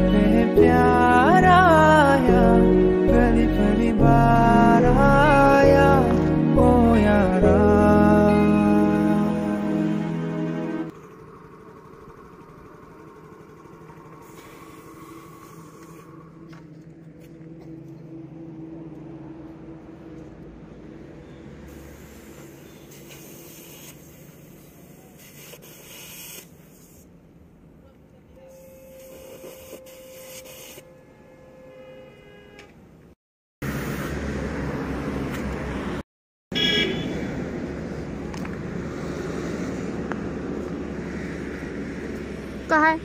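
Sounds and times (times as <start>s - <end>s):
outdoor traffic noise: 0.0s - 43.0s
compressed air hissing from hose: 14.2s - 16.2s, 21.7s - 27.2s, 28.5s - 30.9s.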